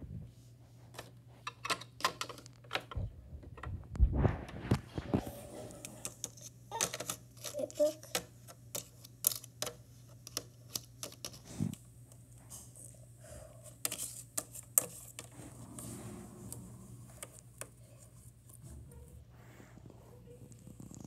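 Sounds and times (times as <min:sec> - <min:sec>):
plastic toys clicking and tapping: 0:01.0 - 0:03.7, 0:06.0 - 0:11.4, 0:13.8 - 0:15.3.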